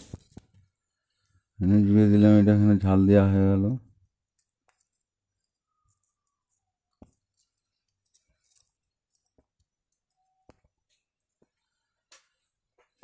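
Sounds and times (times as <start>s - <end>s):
faint clicks and taps: 4.3s - 13.0s.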